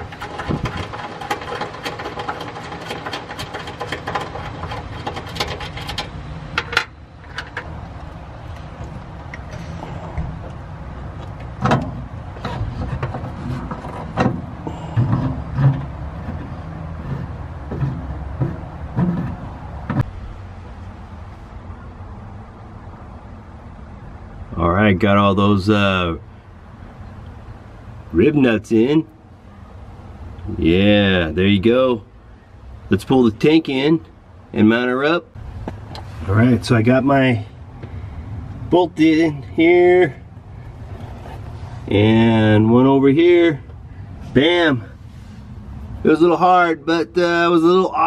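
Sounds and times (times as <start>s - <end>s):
metal clicks and knocks: 0.0s - 10.6s, 11.2s - 20.2s.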